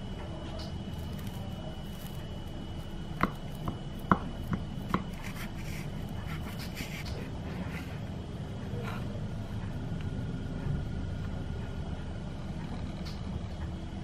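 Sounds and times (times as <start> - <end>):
steady low hum: 0.0 - 14.0
knife cutting pastry crust: 0.9 - 8.0.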